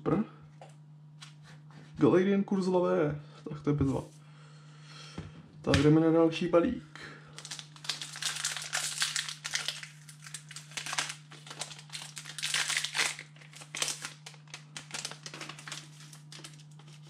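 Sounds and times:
foil wrapper crinkling: 0:07.3 - 0:17.0.

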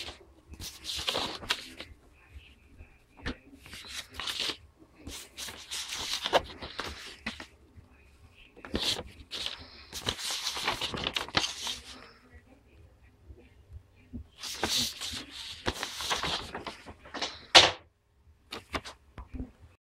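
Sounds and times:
paper rustling and crinkling: 0:00.0 - 0:01.9, 0:03.2 - 0:07.5, 0:08.6 - 0:12.2, 0:14.4 - 0:17.8, 0:18.5 - 0:19.0
sharp loud paper crackle: 0:08.7 - 0:12.0, 0:14.4 - 0:17.8.

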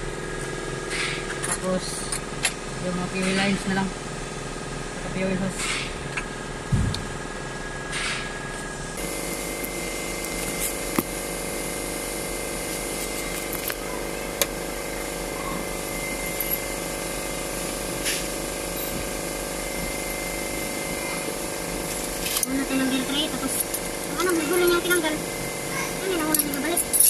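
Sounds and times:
steady mechanical hum: 0:00.0 - 0:27.0.

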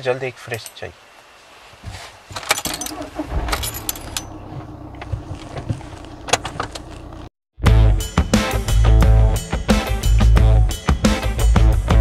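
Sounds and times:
car keys jangling: 0:02.4 - 0:07.2
car engine running: 0:03.0 - 0:07.3.

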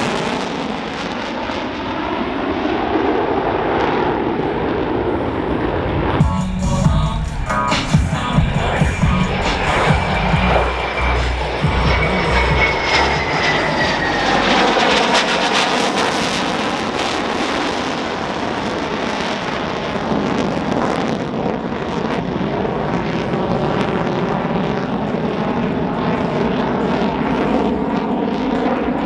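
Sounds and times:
jet passing and climbing: 0:00.0 - 0:29.0.

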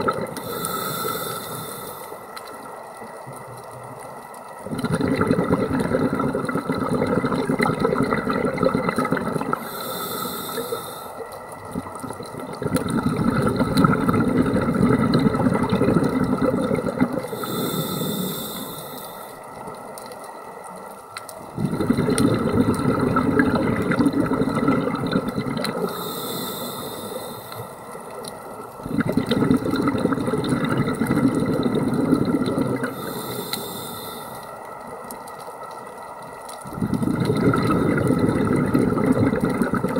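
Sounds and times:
diver inhaling through regulator: 0:00.3 - 0:02.3, 0:09.4 - 0:11.2, 0:17.2 - 0:19.4, 0:25.7 - 0:27.9, 0:32.4 - 0:34.6
exhaust bubbling: 0:21.6 - 0:25.8.

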